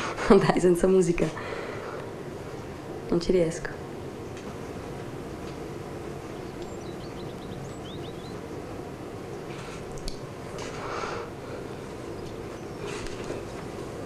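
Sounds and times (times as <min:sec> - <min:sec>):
soft rustles of movement: 0:09.5 - 0:14.0.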